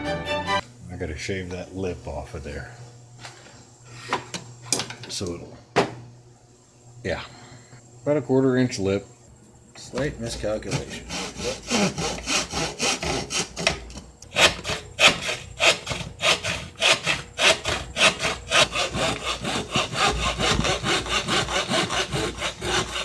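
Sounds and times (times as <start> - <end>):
handsaw cutting wood: 10.4 - 23.0.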